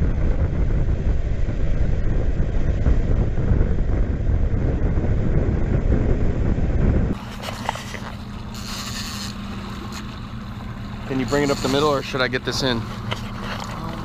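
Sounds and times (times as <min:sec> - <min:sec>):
motorboat running fast: 0:00.0 - 0:14.0
wind buffeting microphone: 0:00.0 - 0:14.0
water rushing past: 0:07.1 - 0:14.0.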